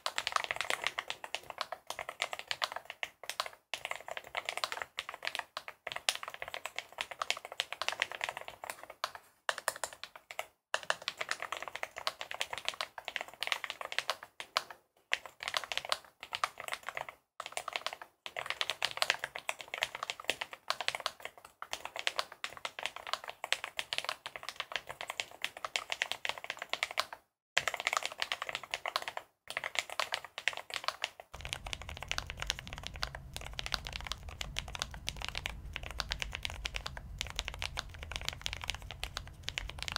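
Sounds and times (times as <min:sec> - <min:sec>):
fast typing on keyboard: 0:00.0 - 0:39.9
low hum: 0:31.4 - 0:39.9.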